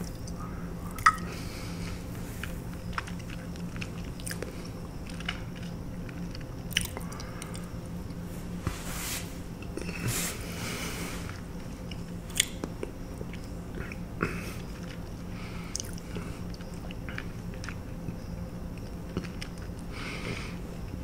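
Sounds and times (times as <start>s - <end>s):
steady low hum: 0.0s - 21.0s
chewing and lip smacking: 2.7s - 8.2s, 14.6s - 19.9s.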